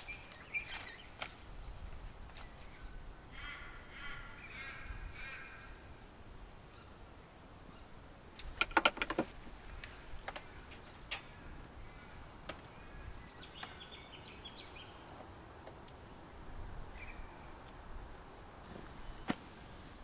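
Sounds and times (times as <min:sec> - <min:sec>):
faint bird chirps: 0:00.0 - 0:01.2
clicks and knocks of tent fittings: 0:08.4 - 0:11.4.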